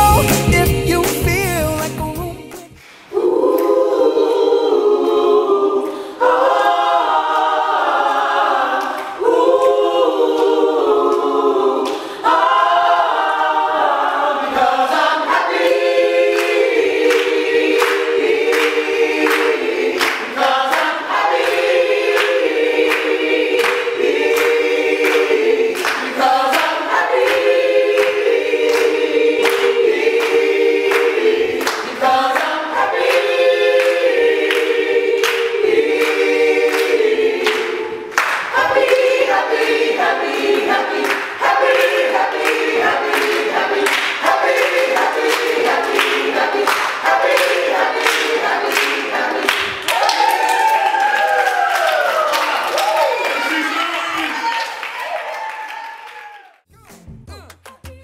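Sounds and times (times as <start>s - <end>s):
group singing a cappella: 0.0s - 52.3s
hand claps: 16.4s - 27.4s, 28.0s - 39.8s, 41.0s - 50.4s, 56.9s - 58.0s.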